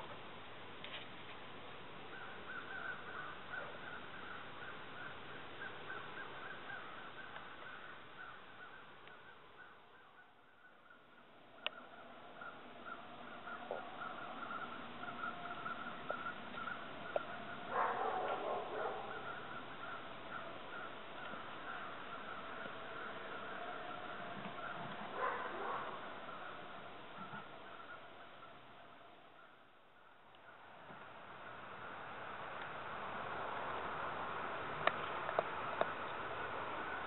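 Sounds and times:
crow cawing: 2.1 - 30.7.

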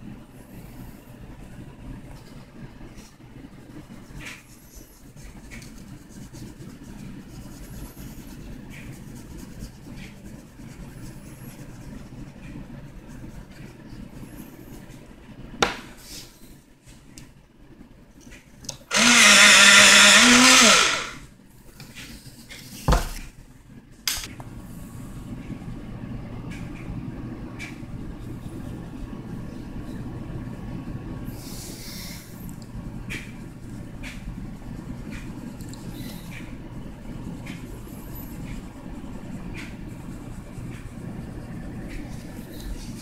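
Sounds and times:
grinding hiss: 18.9 - 21.2
small electric motor whirring: 18.9 - 21.2.

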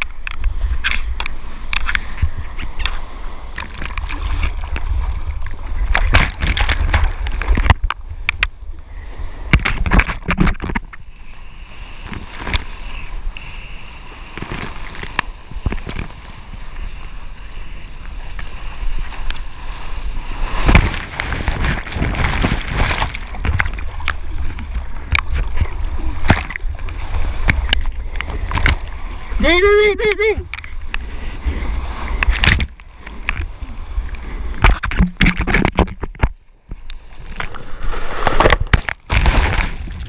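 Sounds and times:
water splashing and rushing: 0.0 - 40.0
wave washing over: 11.6 - 36.2, 37.0 - 40.0.

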